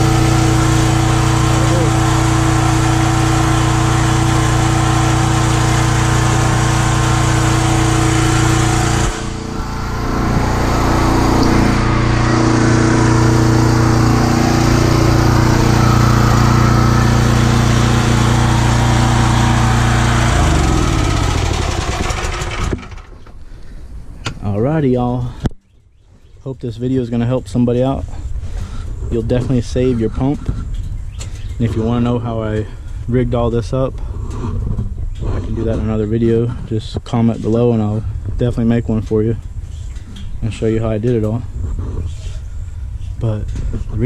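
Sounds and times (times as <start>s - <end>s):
pressure washer engine running: 0.0s - 23.2s
engine running down: 0.0s - 23.4s.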